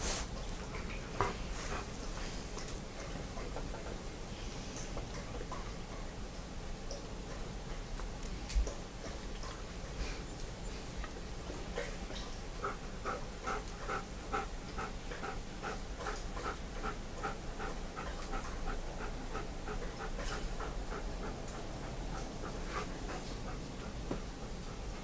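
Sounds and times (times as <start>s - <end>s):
dog panting rapidly: 0.7s - 4.0s, 12.6s - 25.0s.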